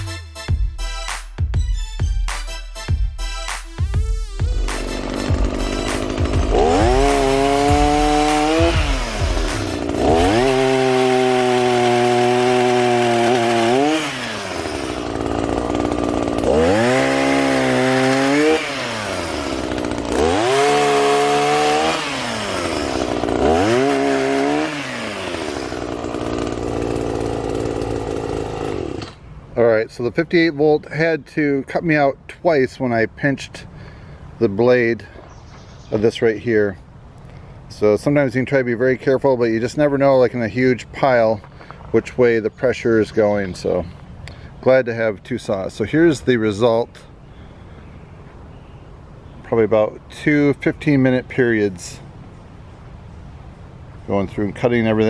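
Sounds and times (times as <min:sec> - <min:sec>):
pruner engine revving: 0:04.2 - 0:29.2
chain rasping through wood: 0:04.8 - 0:29.2.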